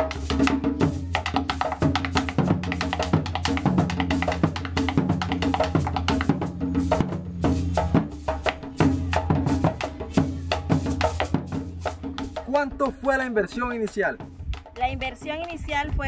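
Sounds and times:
fast drum beat: 0.0s - 16.0s.

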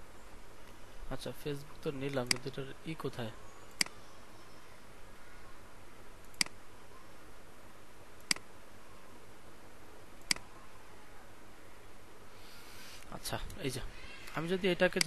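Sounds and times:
faint room hiss: 0.0s - 15.0s
computer mouse clicks: 6.2s - 6.6s, 8.2s - 8.5s.

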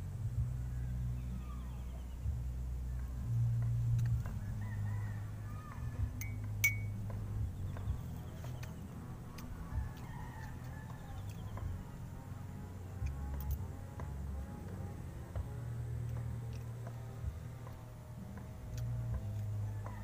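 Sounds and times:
low steady rumble: 0.0s - 20.0s
distant roosters crowing: 2.8s - 20.0s
metal spoon clinking on jar: 6.2s - 7.0s.

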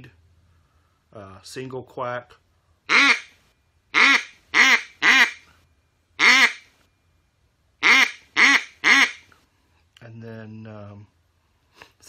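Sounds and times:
duck call quacks: 2.9s - 3.3s, 4.0s - 5.4s, 6.2s - 6.7s, 7.8s - 9.3s.

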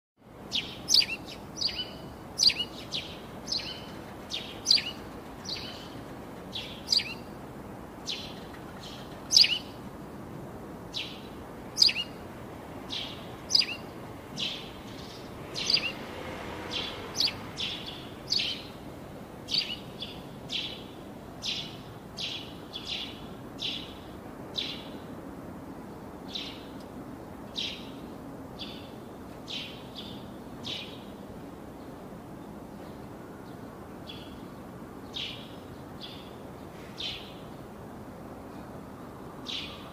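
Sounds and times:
bird chirping: 0.5s - 7.3s, 8.0s - 9.8s, 10.9s - 12.2s, 12.9s - 16.1s, 16.7s - 18.8s, 19.5s - 24.0s.

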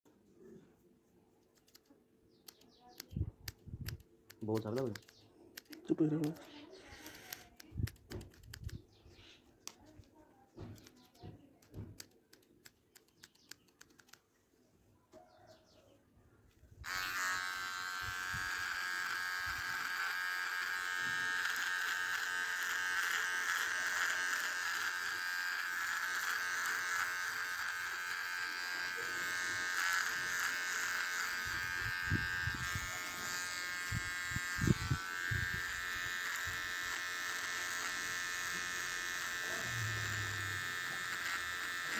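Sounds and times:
scissors snipping hair: 1.5s - 8.8s, 10.7s - 14.2s, 16.9s - 41.9s
electric hair trimmer buzzing: 6.0s - 8.4s, 16.8s - 41.9s.

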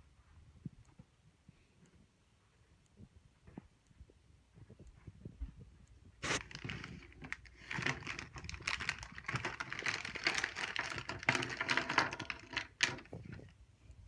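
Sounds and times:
plastic bag crinkling: 6.3s - 13.5s
items clattering on wooden table: 6.4s - 13.5s.

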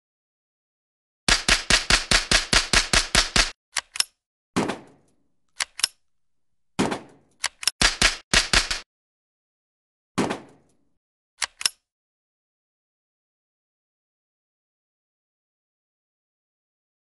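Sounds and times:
machine-gun fire: 1.3s - 3.6s, 7.8s - 8.8s.

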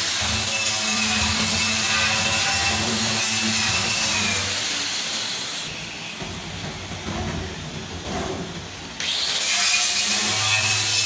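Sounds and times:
angle grinder grinding steel: 0.0s - 6.0s, 9.0s - 11.0s.

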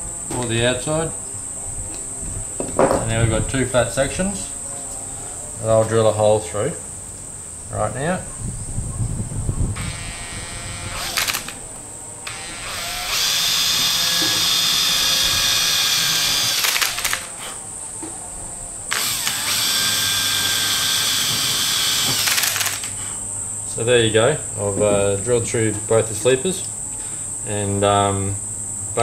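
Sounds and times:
electric drill boring plastic: 9.8s - 11.6s, 12.2s - 17.4s, 18.9s - 23.0s.

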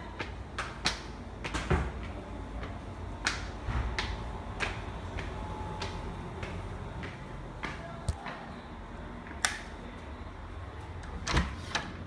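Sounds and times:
footsteps on hard floor: 3.6s - 8.4s.

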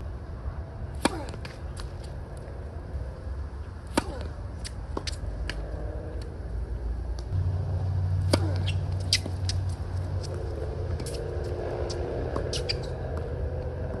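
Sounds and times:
low steady rumble: 0.0s - 14.0s
tennis balls struck by rackets: 0.9s - 2.5s, 3.7s - 6.3s, 8.0s - 14.0s
tennis balls bouncing: 0.9s - 2.6s, 3.8s - 6.3s, 8.1s - 14.0s.

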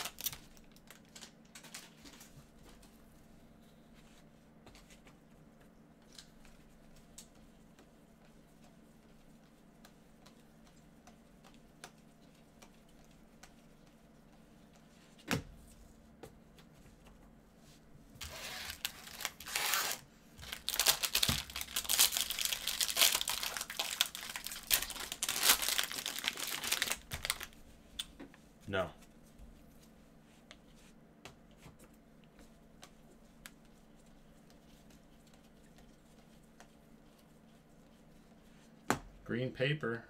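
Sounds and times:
foil wrappers crinkling and tearing: 0.0s - 2.0s, 18.2s - 27.6s
cards being handled: 18.2s - 27.5s.

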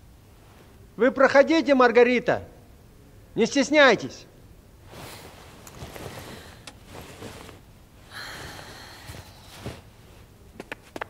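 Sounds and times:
clothing rustling: 4.8s - 11.0s
footsteps: 4.9s - 7.7s, 8.8s - 11.0s.

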